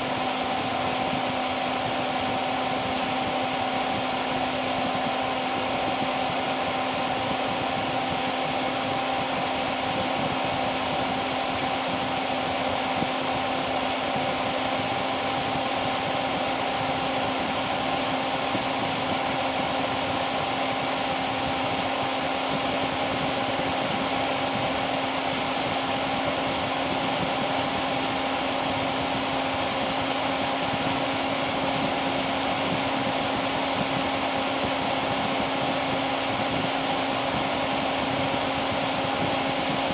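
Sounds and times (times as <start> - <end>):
computer fan running: 0.0 - 39.9.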